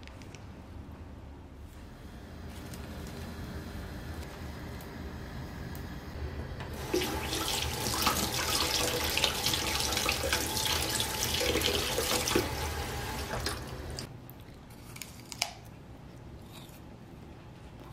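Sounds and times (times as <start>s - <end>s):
water running from tap: 6.7s - 14.1s.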